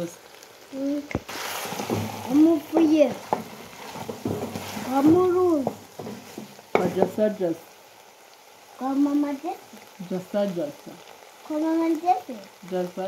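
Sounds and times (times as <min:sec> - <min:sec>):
meat sizzling in a pot: 0:00.0 - 0:13.0
wooden spoon stirring: 0:01.1 - 0:07.4
person speaking: 0:04.8 - 0:05.8.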